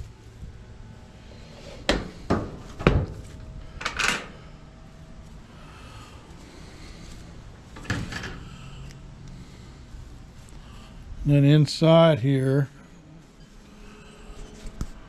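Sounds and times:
metal latch scraping rattle: 3.8 - 4.4.

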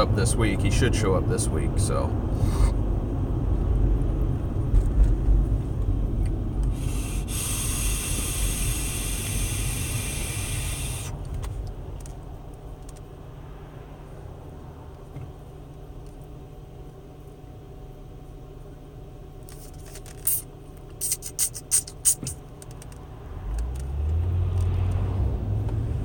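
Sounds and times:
road rumble inside a car: 0.0 - 26.0
vape coil hissing: 6.7 - 11.2.

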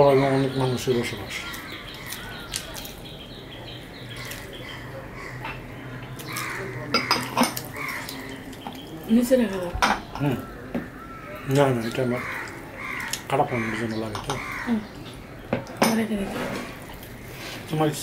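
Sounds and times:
fingers mixing rice: 1.2 - 3.0
china plates clinking: 6.9 - 7.7.

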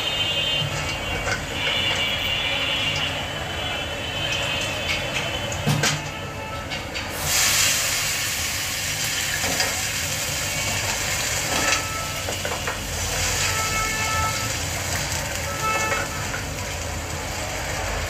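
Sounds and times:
oil sizzling: 6.9 - 18.0
water hissing in hot pan: 7.1 - 18.0.

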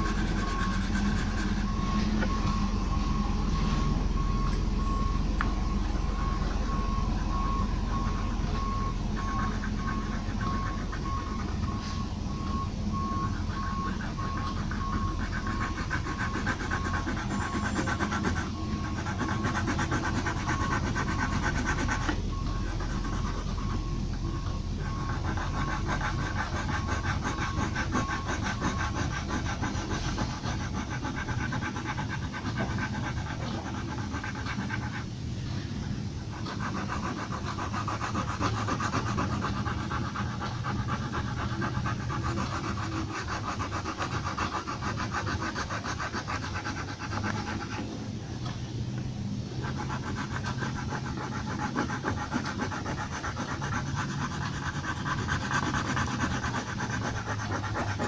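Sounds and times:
pencil shading on paper: 0.0 - 48.0, 49.4 - 58.0
low room hum: 0.0 - 58.0.

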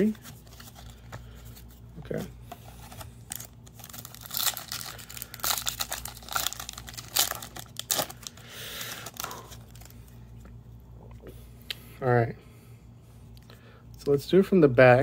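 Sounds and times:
foil wrapper tearing and crinkling: 3.3 - 9.9.

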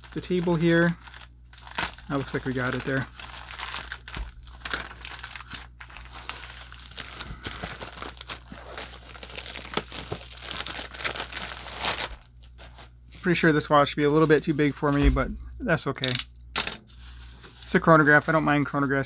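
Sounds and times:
plastic tearing: 0.0 - 12.6
plastic mailer crinkling: 0.0 - 15.0.

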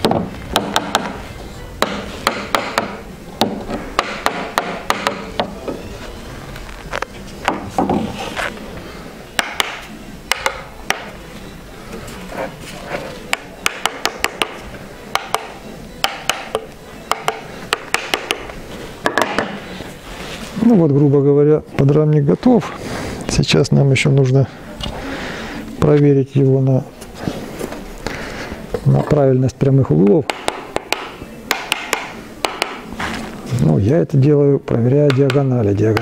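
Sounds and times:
hammer tapping wooden bars: 0.0 - 1.2, 1.8 - 5.6, 9.4 - 11.2, 13.3 - 19.6, 30.2 - 32.8, 35.0 - 36.0.

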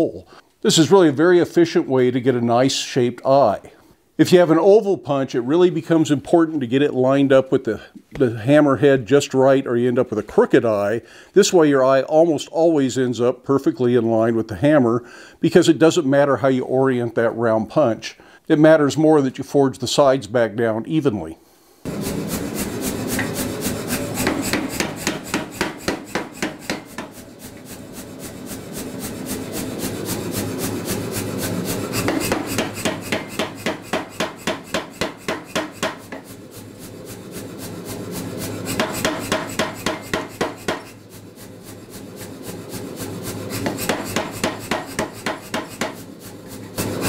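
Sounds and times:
machine running steadily: 21.9 - 47.0
power hammer striking hot steel: 21.9 - 47.0.

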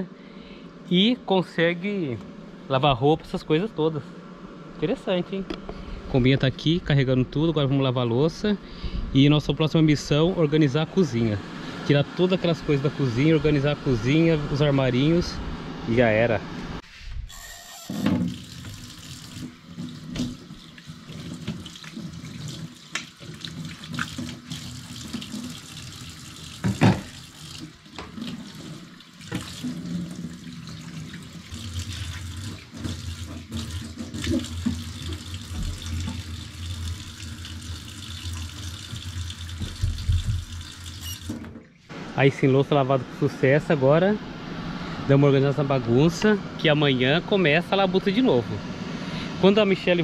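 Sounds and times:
tap water running into sink: 18.0 - 41.8.

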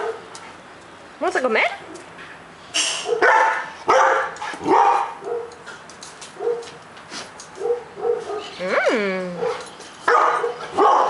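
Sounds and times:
dogs barking and yipping: 3.0 - 6.8, 7.5 - 8.6, 9.4 - 11.0.

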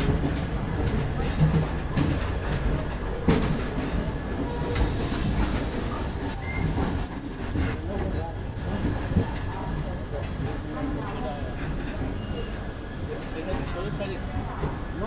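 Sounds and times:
train coaches rumbling past: 0.0 - 15.0
wheels squealing: 4.5 - 12.6.

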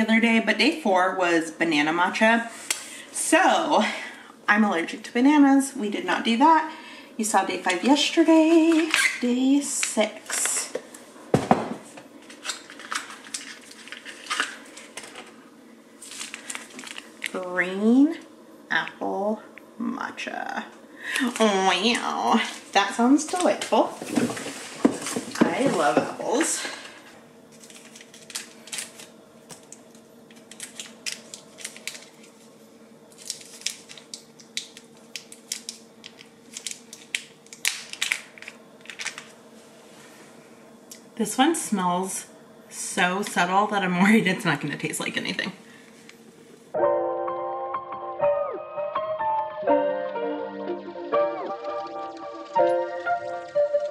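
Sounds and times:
faint steady hum: 0.0 - 53.9
packet crinkling and crackling: 12.2 - 15.4, 16.0 - 17.5, 27.5 - 39.4.

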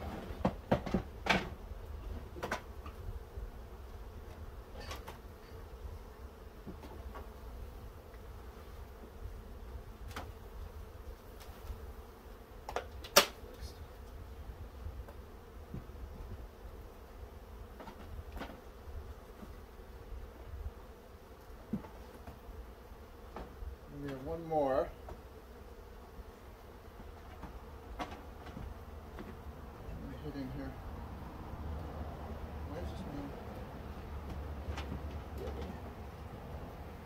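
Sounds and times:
bee swarm buzzing: 0.0 - 37.0
wooden hive frames knocking: 0.2 - 1.6, 2.3 - 3.0, 27.0 - 29.4.

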